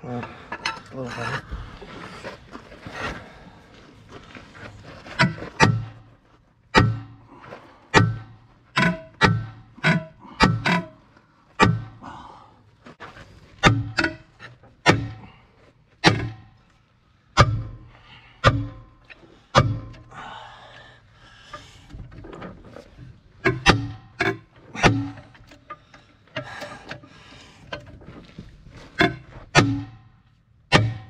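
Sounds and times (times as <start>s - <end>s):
sledgehammer striking steel axle: 5.2s - 6.1s, 6.7s - 7.3s, 7.9s - 11.0s, 11.6s - 12.0s, 13.6s - 15.4s, 16.0s - 16.6s, 17.3s - 20.2s, 23.4s - 27.0s, 29.0s - 31.0s.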